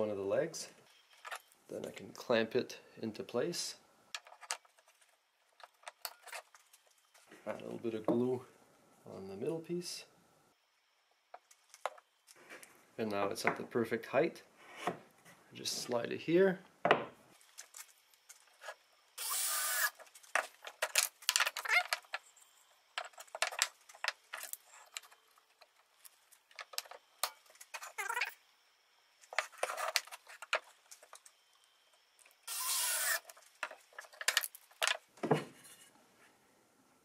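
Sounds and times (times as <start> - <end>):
wooden pieces scraping on workbench: 29.3 - 30.6.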